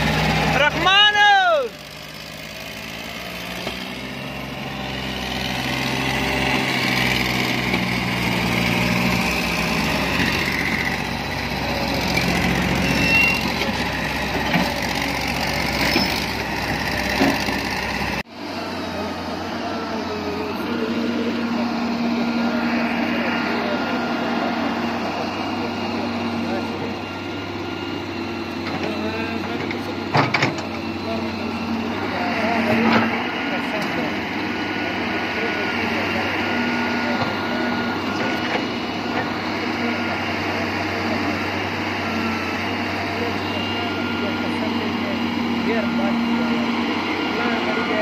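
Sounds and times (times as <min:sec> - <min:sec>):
diesel engines running: 0:00.0 - 0:48.0.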